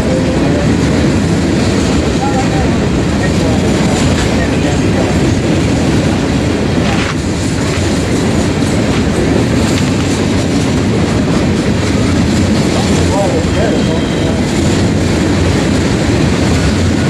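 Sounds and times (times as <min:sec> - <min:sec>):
train wheels on rails: 0:00.0 - 0:17.0.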